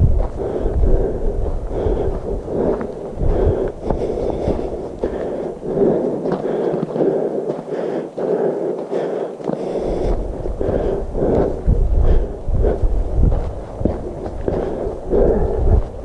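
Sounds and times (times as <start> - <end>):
wind rumble on microphone: 0.0 - 7.2, 9.6 - 16.0
footsteps on forest trail: 0.0 - 16.0.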